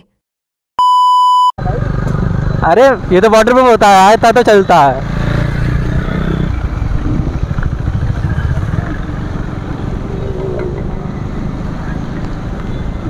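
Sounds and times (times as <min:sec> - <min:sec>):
motorcycle engine rumbling: 0:04.8 - 0:13.0.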